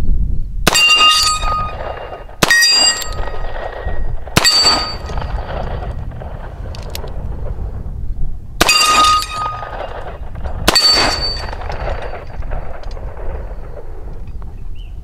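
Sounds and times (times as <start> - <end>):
steel plate target ringing: 0.7 - 3.5, 4.4 - 5.3, 8.6 - 10.0, 10.7 - 12.4.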